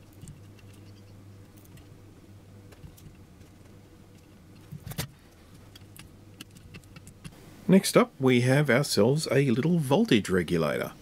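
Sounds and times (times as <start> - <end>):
faint scattered ticks: 0.0 - 1.9
steady low hum: 0.0 - 11.0.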